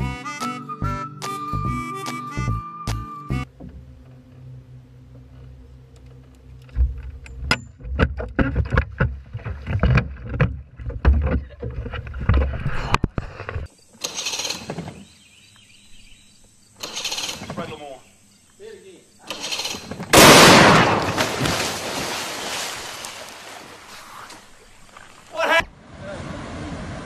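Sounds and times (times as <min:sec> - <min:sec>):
low steady hum: 0:03.4 - 0:13.5.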